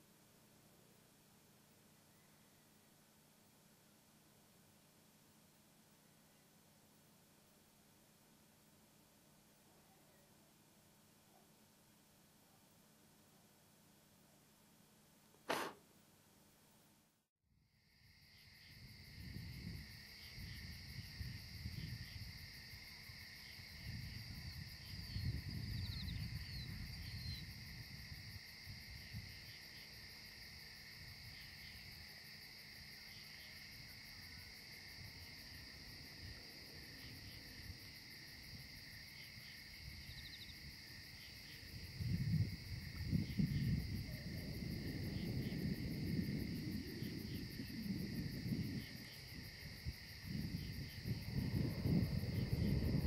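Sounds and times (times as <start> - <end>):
breath blowing out candle: 15.5 - 15.8
crickets trilling: 17.8 - 53.0
wind rumbling on microphone: 18.8 - 29.5, 39.7 - 53.0.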